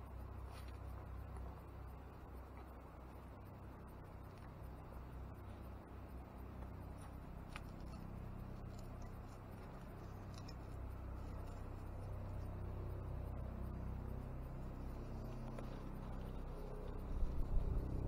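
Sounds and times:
low steady rumble: 0.0s - 18.0s
small clicks: 6.6s - 12.6s.

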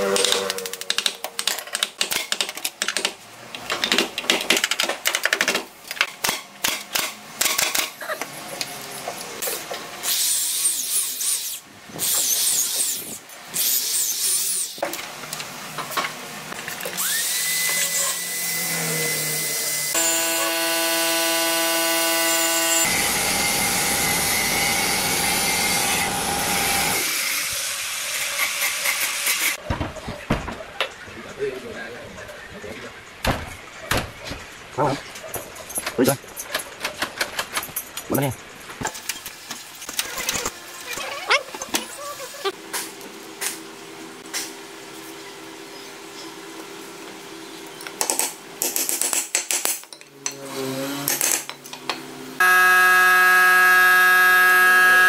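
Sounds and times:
power tool running: 16.8s - 29.3s, 52.4s - 55.0s
brief steady tone: 52.4s - 55.0s.

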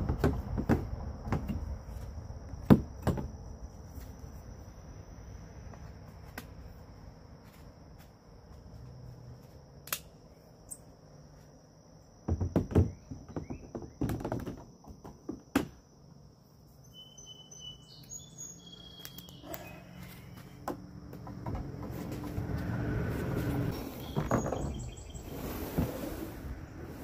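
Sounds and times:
hollow thumps and knocks: 0.0s - 1.8s, 2.5s - 3.4s, 12.2s - 15.8s, 20.6s - 22.9s
high insect trill: 15.8s - 25.6s
short bird chirps: 16.8s - 20.4s.

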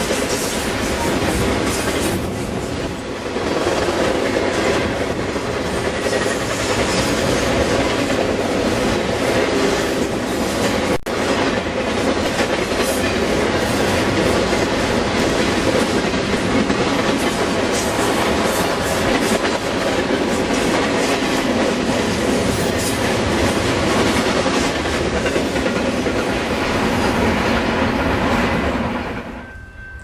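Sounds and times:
train wheels rushing on rail: 0.0s - 30.0s.

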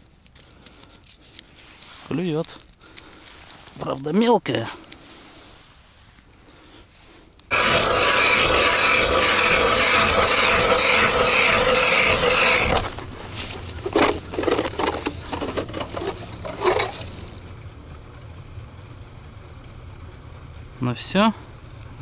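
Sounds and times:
ice auger grinding: 7.5s - 17.4s
soft scrapes and knocks: 12.1s - 17.4s.

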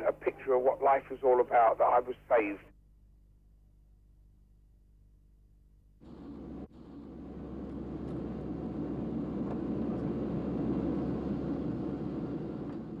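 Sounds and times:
deep hum: 6.0s - 13.0s
engine rumble: 6.0s - 13.0s.

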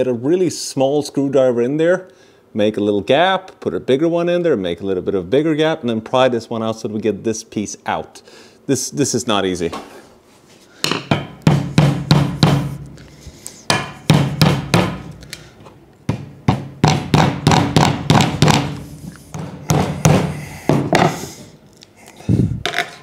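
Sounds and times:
hammer striking metal: 10.9s - 12.8s, 13.7s - 15.2s, 16.5s - 21.2s.

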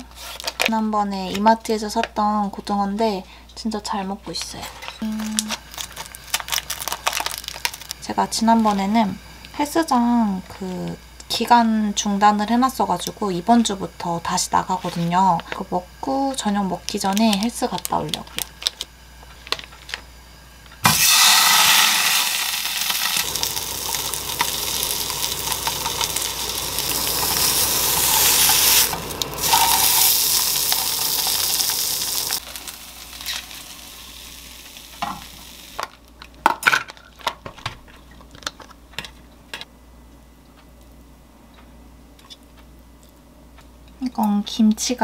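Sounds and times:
fish sizzling in hot oil: 5.6s - 8.1s, 20.8s - 35.9s.

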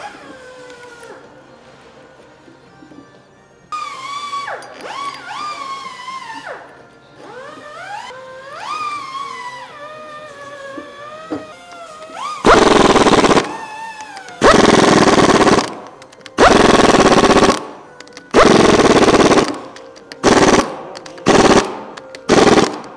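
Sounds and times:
pneumatic impact wrench hammering: 3.8s - 6.6s, 10.8s - 22.9s.

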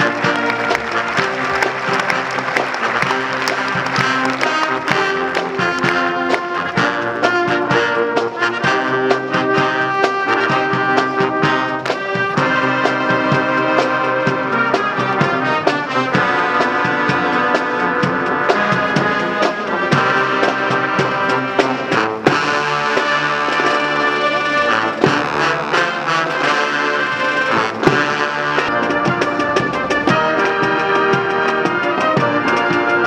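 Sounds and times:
brass band playing: 0.0s - 33.0s
steady drum beat: 0.0s - 33.0s.

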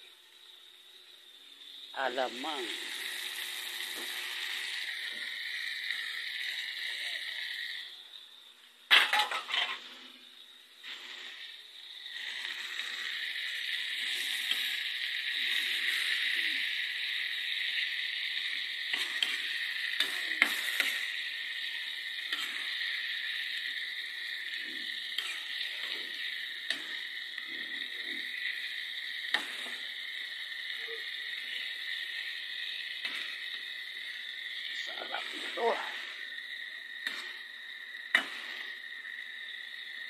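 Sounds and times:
steady high hiss: 0.0s - 40.0s
metal spatula scraping a wok: 9.0s - 9.9s.

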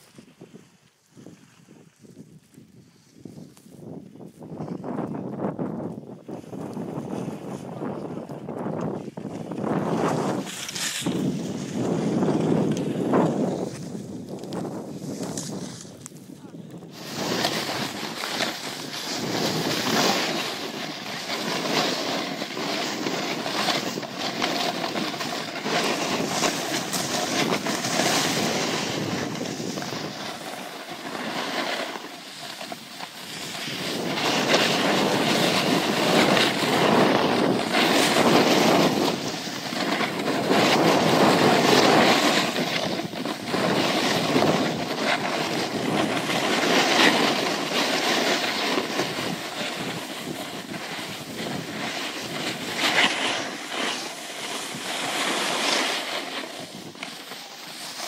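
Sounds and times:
skis sliding on snow: 0.0s - 58.0s
wind over microphone: 0.0s - 58.0s.

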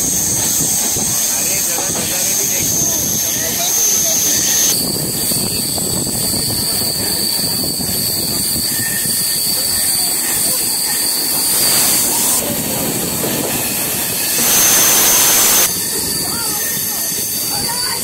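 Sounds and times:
rushing air: 0.0s - 18.0s
train wheels rumbling on rails: 0.0s - 18.0s.

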